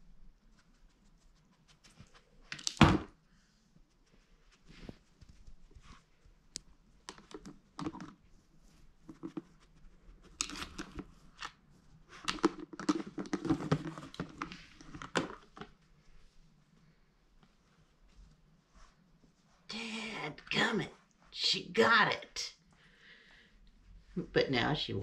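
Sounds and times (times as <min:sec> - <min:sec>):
plastic lid clicks and scrapes: 0:10.4 - 0:11.5.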